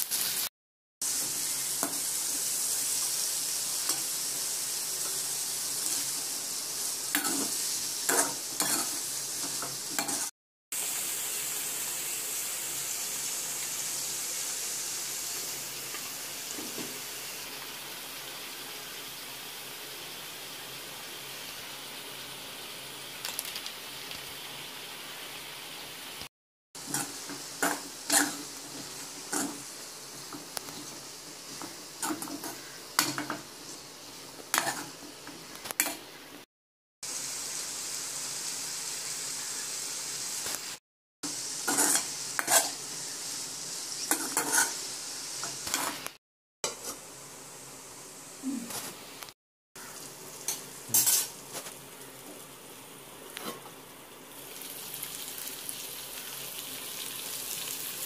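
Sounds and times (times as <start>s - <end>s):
vegetables sizzling in a pan: 0.0s - 58.0s
metal spatula scraping a pan: 7.1s - 10.3s, 26.8s - 29.7s, 34.5s - 35.0s, 41.7s - 42.8s, 44.1s - 46.1s, 50.5s - 51.4s.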